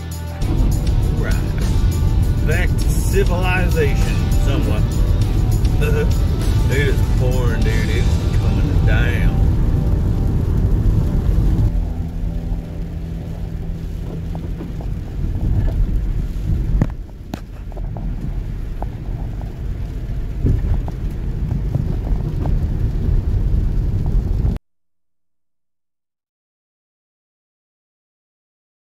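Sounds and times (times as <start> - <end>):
car road and engine rumble: 0.0 - 24.6
raindrops ticking on windshield: 0.5 - 24.6.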